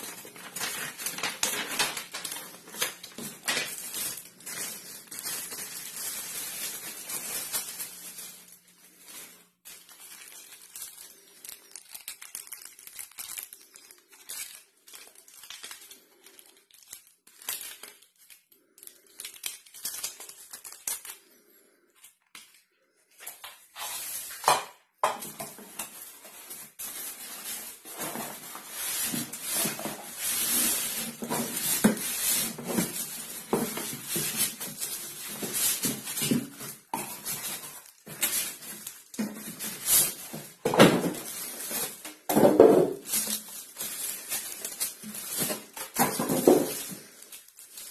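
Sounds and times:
cardboard and polystyrene scraping: 0.0 - 11.3, 23.5 - 24.6, 25.2 - 47.9
plastic bag crinkling: 0.0 - 47.9.

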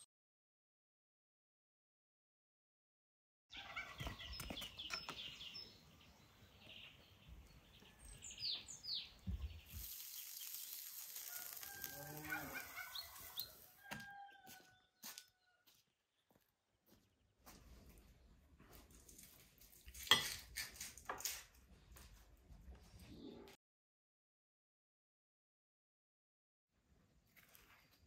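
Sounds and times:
small birds chirping: 3.5 - 15.6
rooster crowing: 11.2 - 15.8.

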